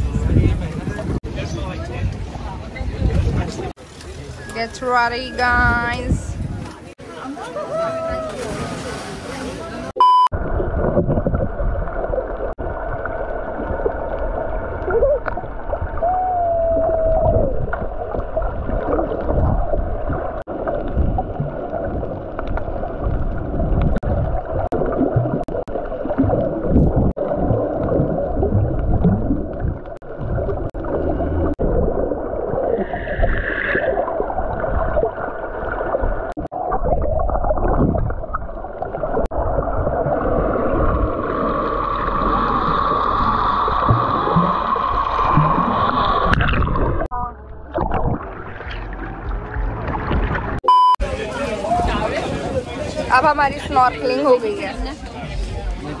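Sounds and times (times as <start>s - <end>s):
water splash: 8.0s - 16.2s, 16.9s - 50.6s
water rushing and gurgling underwater: 8.6s - 55.9s.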